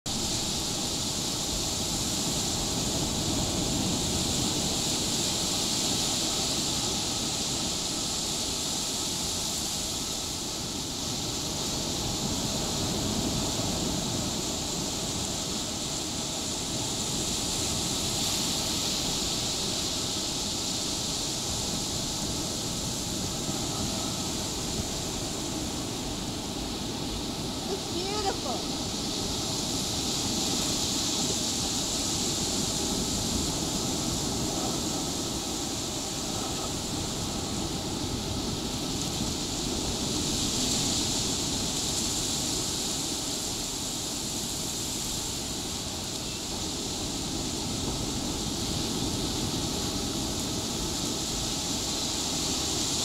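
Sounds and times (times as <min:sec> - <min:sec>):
ocean surf breaking on beach: 0:00.1 - 0:53.0.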